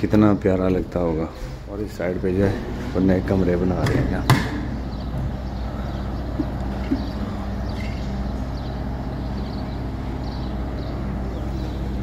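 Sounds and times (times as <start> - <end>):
diesel engine idling: 0.0 - 12.0
faint bird chirps: 4.8 - 12.0.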